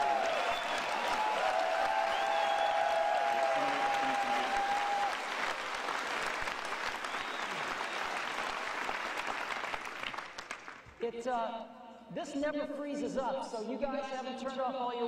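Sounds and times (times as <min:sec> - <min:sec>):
large audience applauding: 0:00.0 - 0:11.0.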